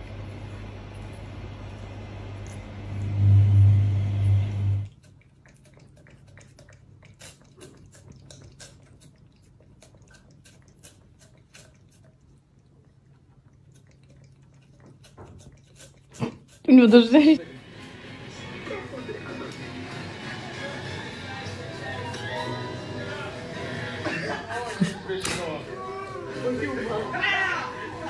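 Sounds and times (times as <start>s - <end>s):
loud low hum: 0.0s - 4.9s
cat licking yogurt: 4.8s - 17.4s.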